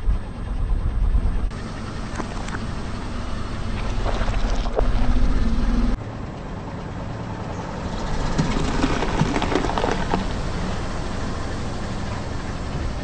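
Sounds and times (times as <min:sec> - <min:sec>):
car engine rumbling: 0:00.0 - 0:13.0
tyre rolling on asphalt: 0:08.2 - 0:10.8.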